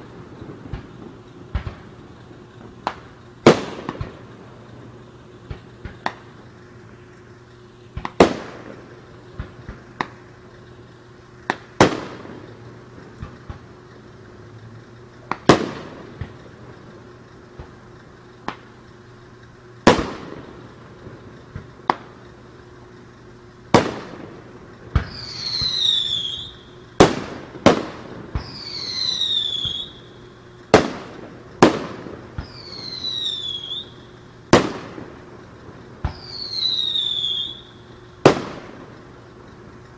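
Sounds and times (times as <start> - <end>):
fireworks bangs: 0.0 - 39.9
small firework pops: 0.0 - 39.9
falling firework whistle: 24.9 - 35.1, 36.0 - 38.7.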